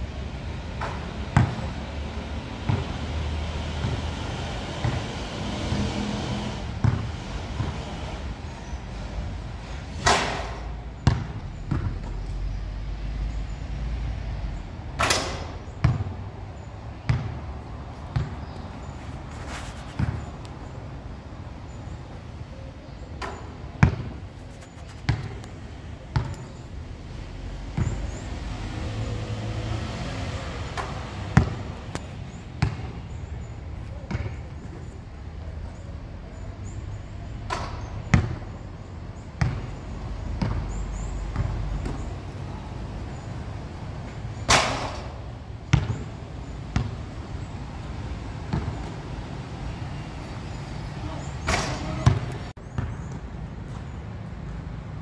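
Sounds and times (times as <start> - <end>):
ball hitting hoop: 2.6 - 3.0, 6.8 - 7.8, 10.0 - 12.1, 15.0 - 16.2, 17.0 - 17.4, 23.3 - 24.2, 25.1 - 25.4, 26.1 - 26.4, 30.8 - 33.0, 39.4 - 39.8, 40.4 - 42.1, 44.5 - 46.0, 48.5 - 48.9, 51.4 - 53.0
basketball bouncing on hard floor: 2.7 - 2.9, 6.8 - 7.8, 11.0 - 12.1, 15.8 - 16.1, 17.1 - 17.4, 18.1 - 18.4, 25.1 - 25.4, 31.4 - 32.9, 39.4 - 39.7, 40.4 - 40.6, 45.7 - 46.0, 51.5 - 53.2.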